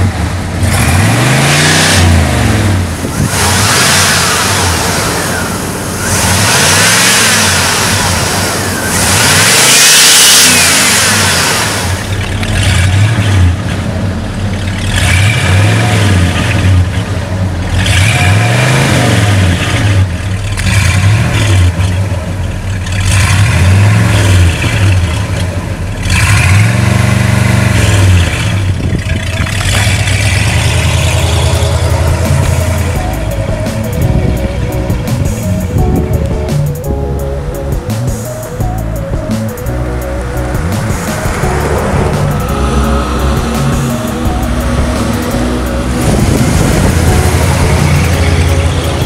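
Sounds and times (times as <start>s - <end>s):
car engine revving and idling: 0.0s - 49.0s.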